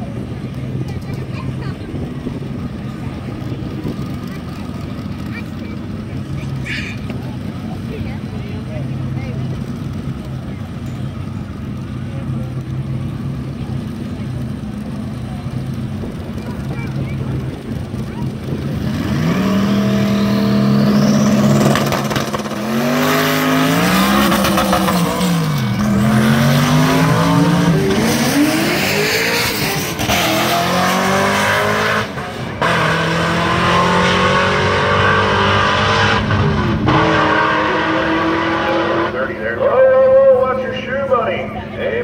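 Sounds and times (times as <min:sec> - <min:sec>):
drag car engines revving: 0:00.0 - 0:42.0
cars accelerating hard: 0:11.5 - 0:42.0.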